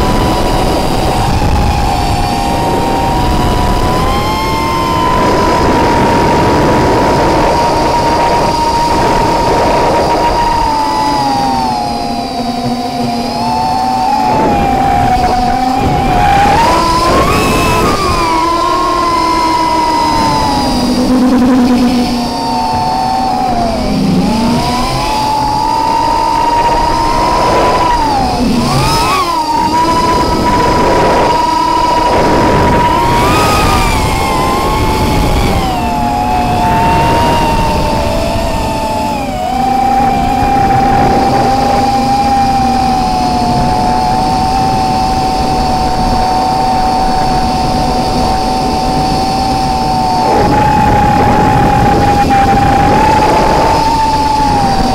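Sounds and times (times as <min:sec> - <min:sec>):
quadcopter motors whining: 0:00.0 - 0:54.9
rushing noise: 0:00.0 - 0:54.9.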